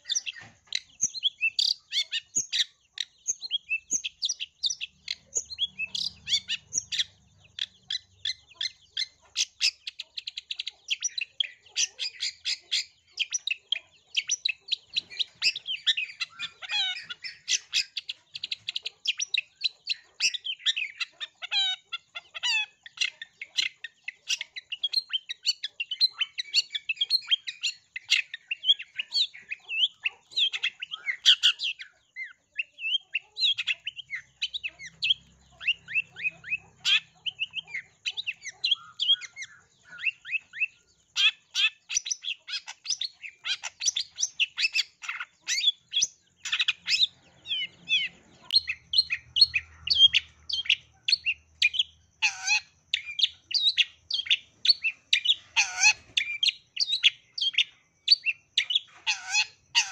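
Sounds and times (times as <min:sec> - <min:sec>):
bird singing chirps and trills: 0:00.0 - 0:59.9.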